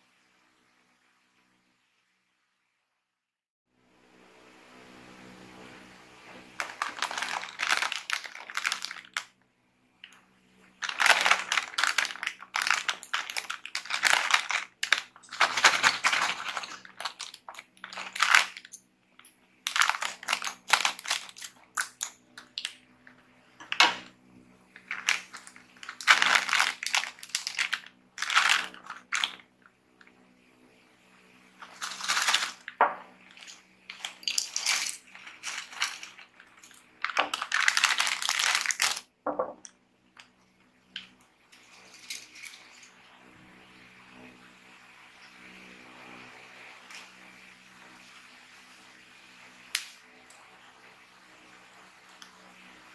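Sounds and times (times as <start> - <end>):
foil snack bag crinkling: 6.5 - 9.3, 10.8 - 18.8, 19.6 - 22.8, 24.8 - 29.5, 31.6 - 39.1, 41.6 - 42.9.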